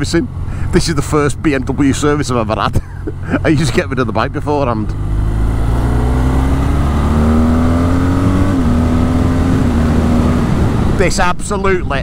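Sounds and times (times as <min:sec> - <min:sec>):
motorcycle engine accelerating: 0:03.1 - 0:11.2.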